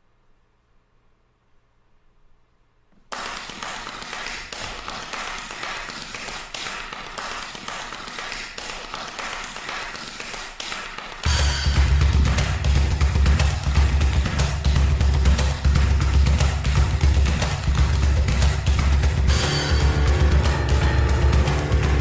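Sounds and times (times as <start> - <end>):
audience applauding: 3.1 - 14.6
music with heavy drums: 11.3 - 22.0.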